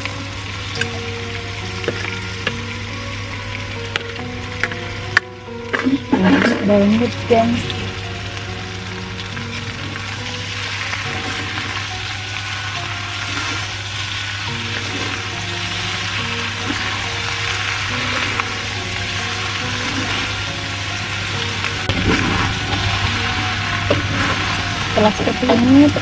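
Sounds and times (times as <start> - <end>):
hot oil sizzling: 0.0 - 26.0
metal spatula scraping wok: 9.2 - 26.0.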